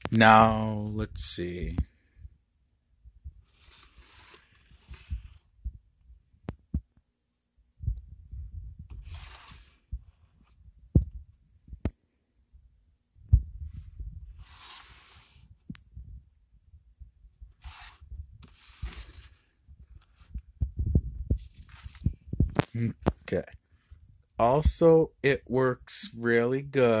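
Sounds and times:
cardboard rubbing and scraping: 3.4s - 5.4s, 8.9s - 10.6s, 14.3s - 15.5s, 17.5s - 20.4s, 21.3s - 22.7s.

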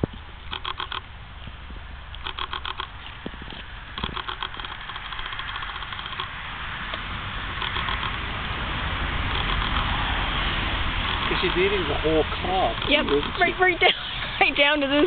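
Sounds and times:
engine-like rumble: 0.0s - 15.0s
dog crunching corn cob: 0.5s - 7.0s, 11.0s - 11.9s.

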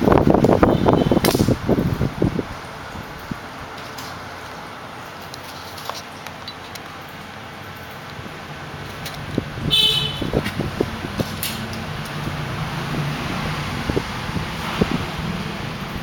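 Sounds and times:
road traffic: 0.0s - 16.0s
vehicle horn toot: 0.6s - 1.2s, 9.6s - 10.4s.

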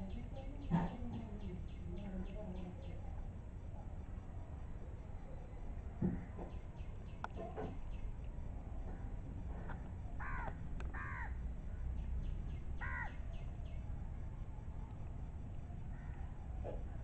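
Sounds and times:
low background rumble: 0.0s - 17.0s
crow cawing: 10.2s - 11.4s, 12.8s - 13.2s, 15.9s - 16.3s.

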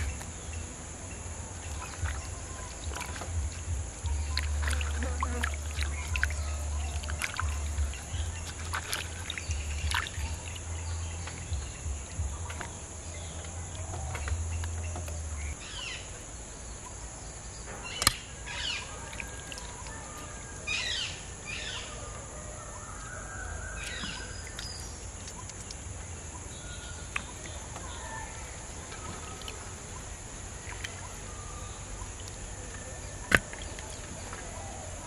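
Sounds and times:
high insect buzz: 0.0s - 19.0s
birds chirping and calling: 0.0s - 35.0s
low hum: 0.0s - 35.0s.

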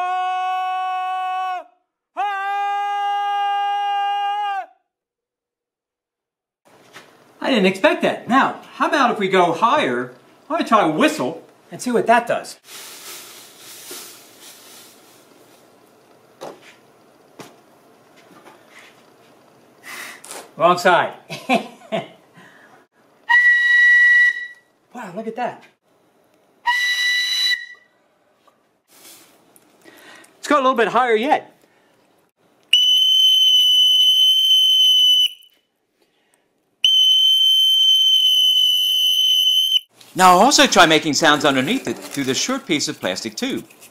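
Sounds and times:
sand sprinkled on plastic: 12.6s - 15.8s, 28.9s - 29.4s, 40.0s - 43.9s
whistle long high notes: 23.3s - 24.7s, 26.7s - 27.9s, 32.7s - 35.6s, 36.8s - 39.9s.

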